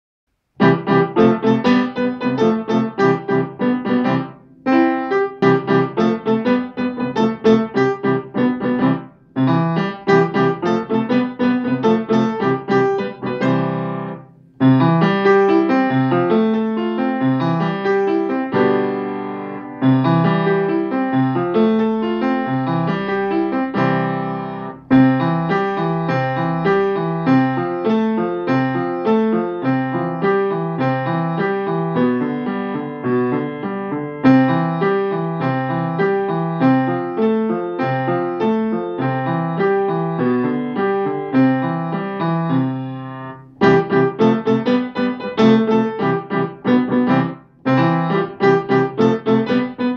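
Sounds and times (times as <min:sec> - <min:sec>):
piano playing: 0:00.5 - 0:49.9.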